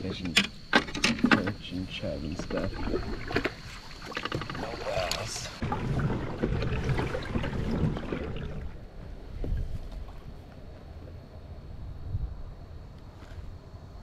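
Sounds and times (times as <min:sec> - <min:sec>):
kayak paddle in water: 0:02.2 - 0:10.8.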